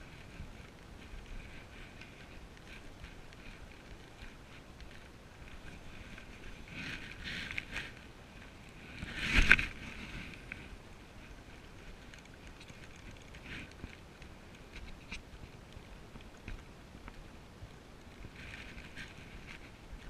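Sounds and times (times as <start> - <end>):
fishing reel rustling and clicks: 0.0 - 15.5
wind and water: 0.0 - 20.0.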